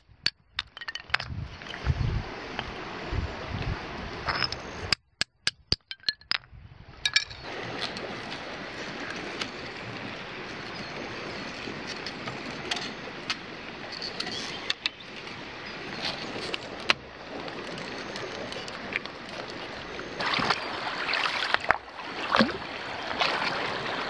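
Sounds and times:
wire clinking while twisted: 5.2 - 7.5.

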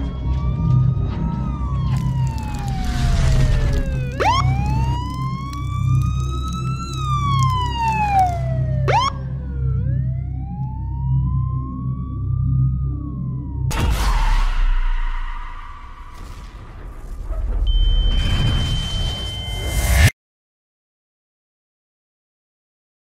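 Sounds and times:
siren wailing: 0.0 - 13.7
sharp siren chirps: 0.0 - 16.2, 17.7 - 20.1.

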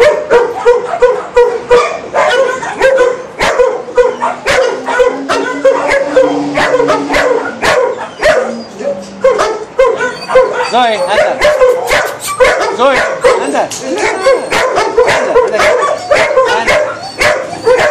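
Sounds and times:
dogs barking: 0.0 - 17.9.

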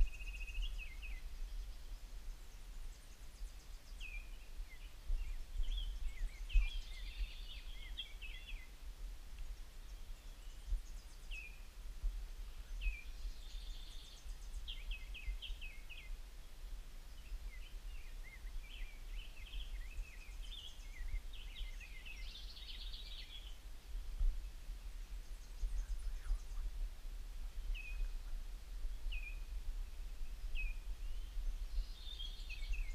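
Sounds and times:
songbirds chirping and trilling: 0.0 - 32.9.

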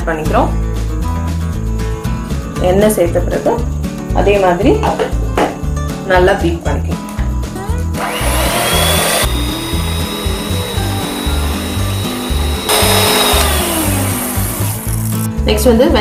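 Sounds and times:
electric hand mixer whirring: 8.0 - 15.3.

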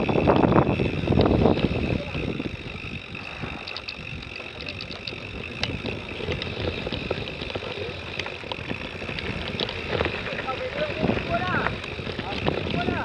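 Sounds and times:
bike rattling over bumps: 0.0 - 13.0
tyres rumbling on gravel: 0.0 - 13.0.

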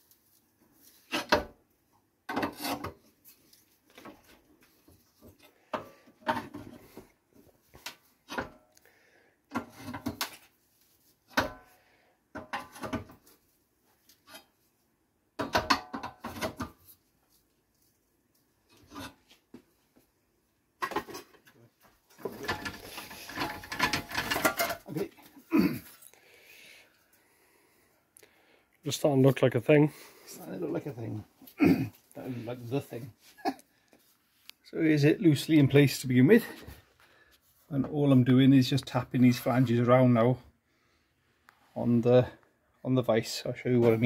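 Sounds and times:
metal scraping and rattling: 22.1 - 25.1.

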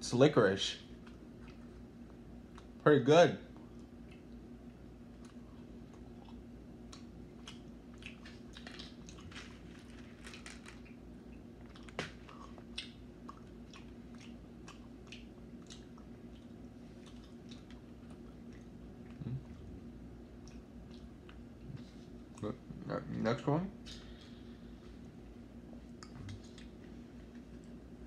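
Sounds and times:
chewing with wet mouth clicks: 1.0 - 2.8, 3.5 - 9.4, 10.2 - 19.7, 20.3 - 22.5, 25.9 - 27.8.

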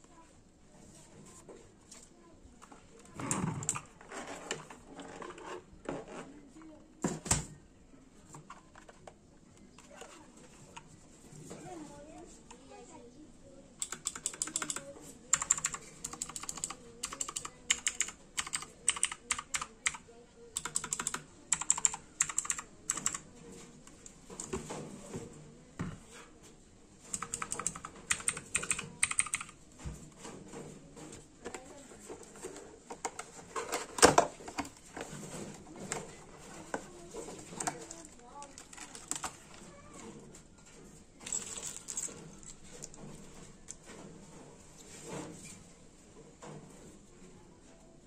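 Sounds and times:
mechanical keyboard key clicks: 13.8 - 20.0, 20.6 - 23.2, 27.1 - 29.5.

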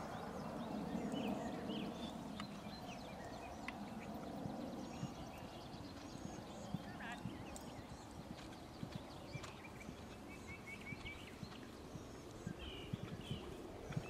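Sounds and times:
horse hoofbeats on grass: 3.6 - 14.0.

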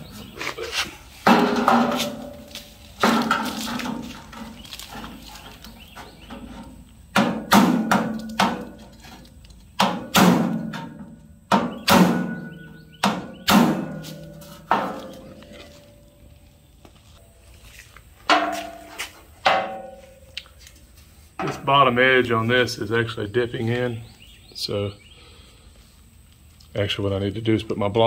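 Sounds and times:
hammer striking steel panel: 7.1 - 8.8, 9.8 - 15.0, 18.3 - 20.1.

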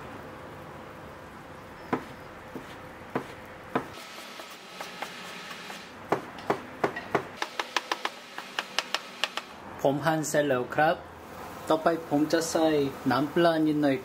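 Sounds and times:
knife chopping on cutting board: 1.9 - 4.0, 4.8 - 9.4.

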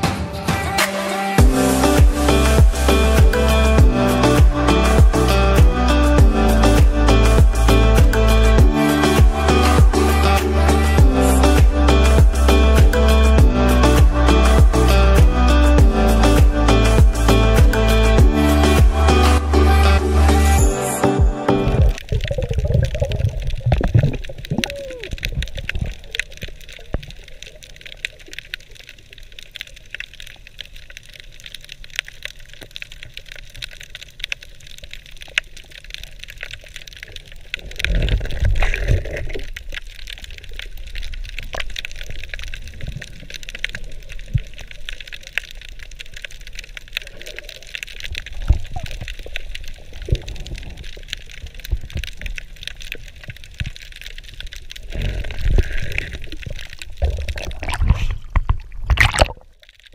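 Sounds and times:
swooshing water surges: 21.7 - 59.9
underwater crackle of tiny clicks: 21.8 - 59.9.

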